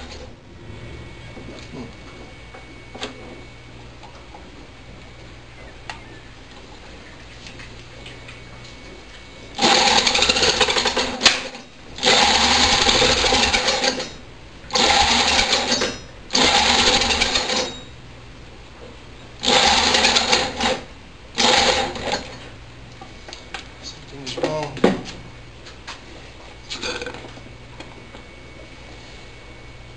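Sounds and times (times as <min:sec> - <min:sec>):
small engine spun by electric drill: 0:09.6 - 0:17.9, 0:19.4 - 0:22.4.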